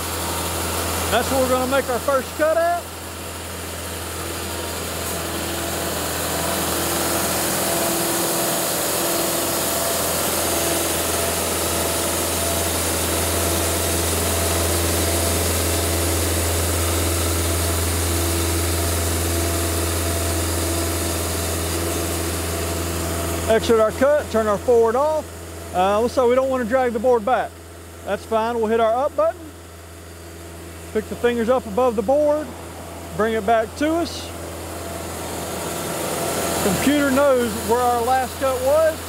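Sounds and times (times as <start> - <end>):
bandsaw cutting log: 0.0 - 23.8, 33.2 - 39.0.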